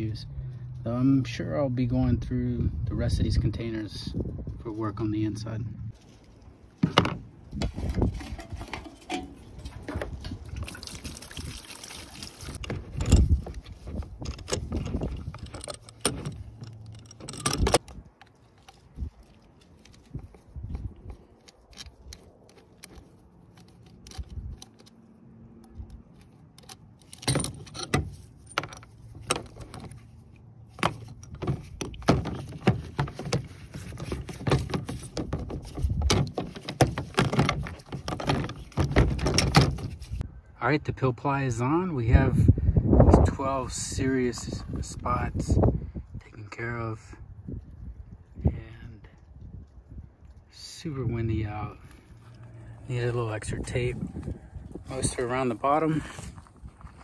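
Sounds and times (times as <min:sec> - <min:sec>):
metal tools clinking and knocking: 0:06.8 - 0:10.3, 0:12.6 - 0:18.9, 0:25.7 - 0:30.1.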